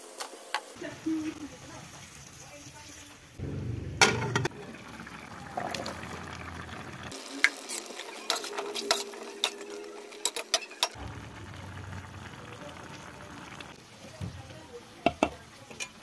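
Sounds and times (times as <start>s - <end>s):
water sizzling in a pan: 0.0s - 16.0s
spatula scraping a metal pan: 7.7s - 11.0s.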